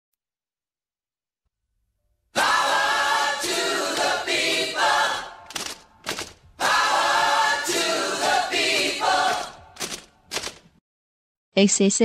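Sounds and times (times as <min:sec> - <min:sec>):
group singing a cappella jingle: 0:02.4 - 0:05.6, 0:06.6 - 0:09.8.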